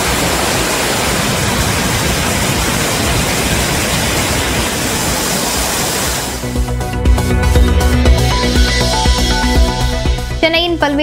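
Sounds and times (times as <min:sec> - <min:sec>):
water rushing over a weir: 0:00.0 - 0:06.6.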